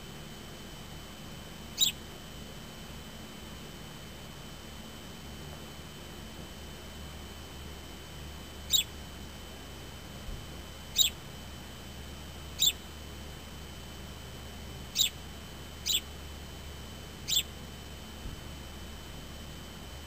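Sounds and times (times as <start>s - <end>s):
sparrow chirping: 1.7s - 2.0s, 8.7s - 8.9s, 10.9s - 11.2s, 12.5s - 12.8s, 14.9s - 15.2s, 15.8s - 16.1s, 17.2s - 17.5s.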